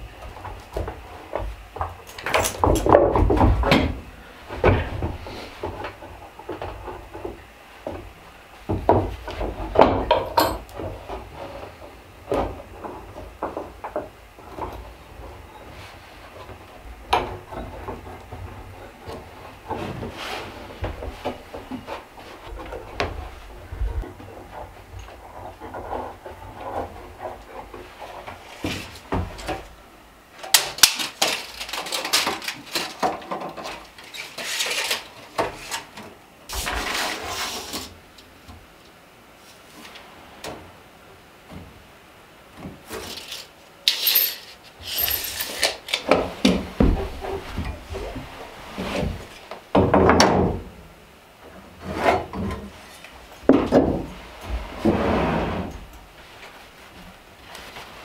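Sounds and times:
wooden boards knocking and scraping: 0.2s - 15.4s, 46.0s - 50.8s, 51.8s - 55.2s.

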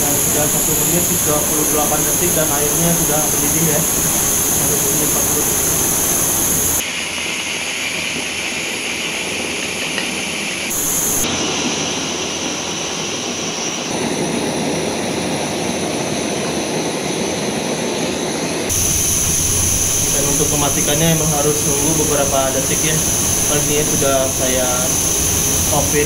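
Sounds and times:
gas stove burner rushing: 0.0s - 6.8s, 10.7s - 11.3s, 18.7s - 26.0s
water boiling in kettle: 0.0s - 6.8s, 9.5s - 11.3s, 18.7s - 26.0s.

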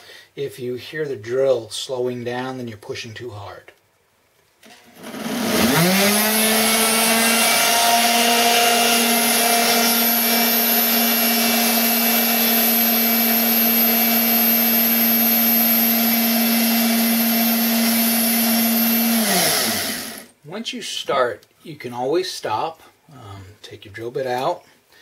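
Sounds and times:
grinder drilling into glass: 4.9s - 20.3s.

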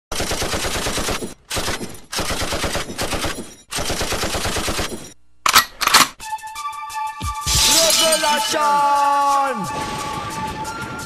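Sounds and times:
machine-gun fire bursts: 0.1s - 5.1s.

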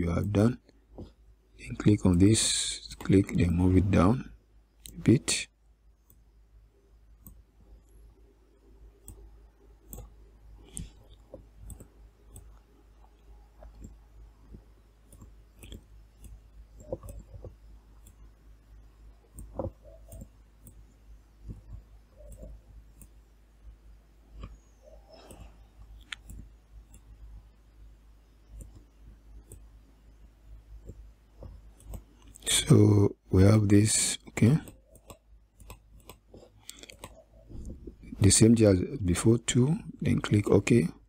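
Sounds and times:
low steady hum: 0.0s - 41.0s
faint computer mouse clicks: 9.0s - 12.6s, 19.3s - 20.8s, 24.4s - 27.1s.

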